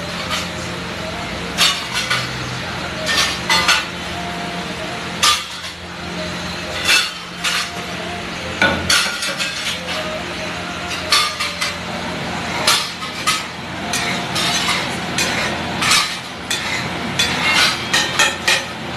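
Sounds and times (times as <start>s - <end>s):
steady background hum: 0.0s - 18.9s.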